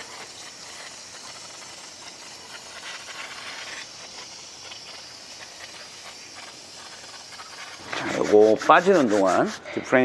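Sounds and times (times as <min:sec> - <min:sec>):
fluid trickling into a collector: 0:00.0 - 0:08.0.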